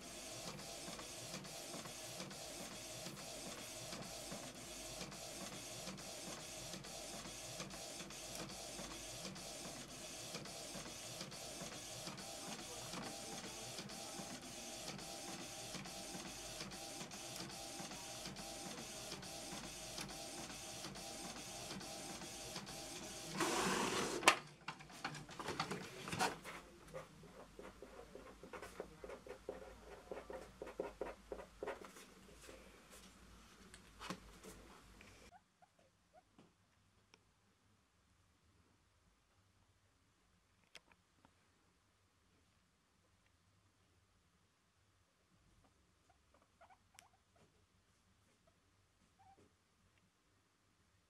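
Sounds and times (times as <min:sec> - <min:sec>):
printer whirring and clicking: 0:00.0 - 0:26.5.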